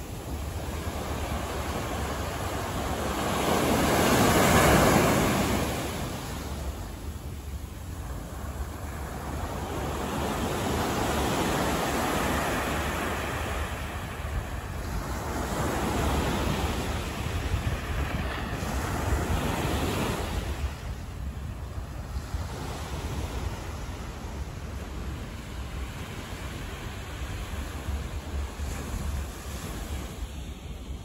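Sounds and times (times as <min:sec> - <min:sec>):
wind rumble on microphone: 0:00.0 - 0:31.0.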